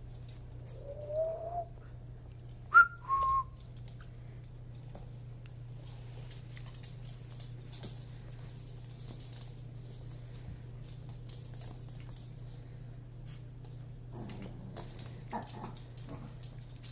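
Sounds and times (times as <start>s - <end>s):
low hum: 0.0s - 6.3s
puppy claws pattering on floor: 0.0s - 16.9s.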